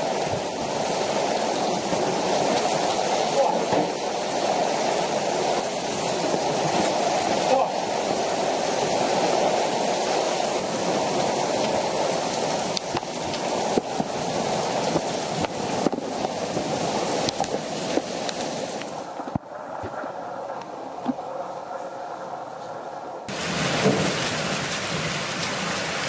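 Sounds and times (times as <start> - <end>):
heavy rain on tiles: 0.0 - 26.0.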